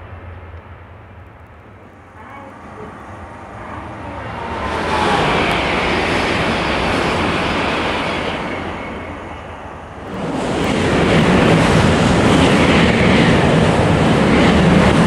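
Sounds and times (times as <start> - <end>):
train rushing past: 0.0 - 15.0
train rushing with deep rumble: 0.0 - 15.0.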